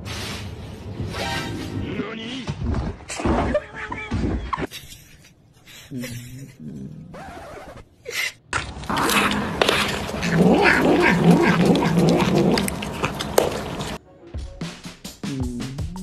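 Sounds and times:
cat yowling and growling: 8.9 - 14.0.

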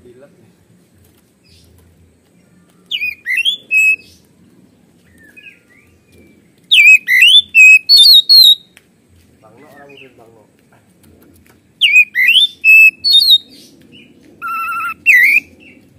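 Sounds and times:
bird singing whistled phrases: 2.9 - 4.1, 6.7 - 8.7, 11.8 - 13.5, 14.4 - 15.5.

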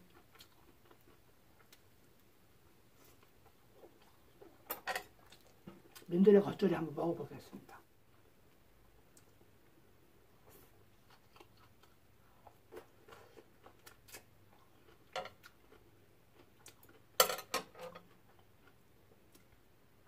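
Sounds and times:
chewing salad: 0.0 - 6.1, 10.4 - 17.2, 17.8 - 19.6.

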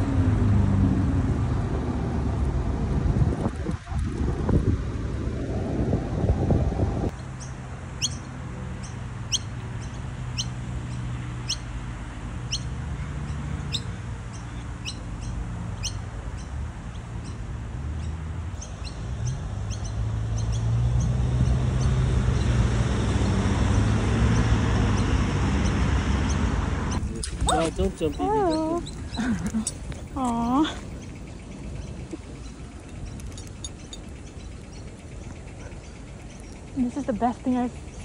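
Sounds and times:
low steady rumble: 0.0 - 38.0
bird chirping: 7.1 - 11.8, 12.4 - 17.4, 18.0 - 22.6, 24.4 - 38.0.

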